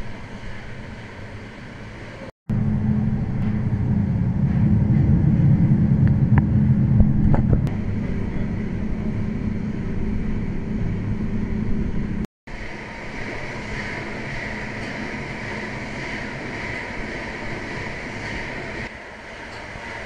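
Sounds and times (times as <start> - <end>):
steam engine rumbling: 0.0 - 20.0.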